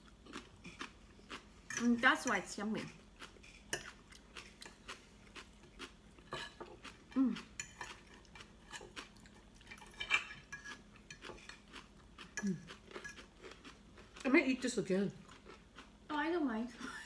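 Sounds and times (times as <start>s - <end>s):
cutlery scraping on plates: 1.7s - 4.8s, 6.3s - 6.8s, 7.5s - 9.0s, 9.7s - 11.7s, 12.4s - 13.3s, 16.8s - 17.0s
person humming: 7.1s - 7.4s.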